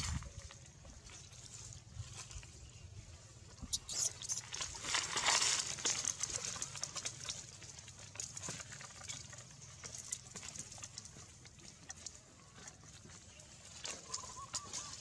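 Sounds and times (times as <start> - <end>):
dry leaves rustling and crackling: 4.4 - 11.7, 12.6 - 15.0.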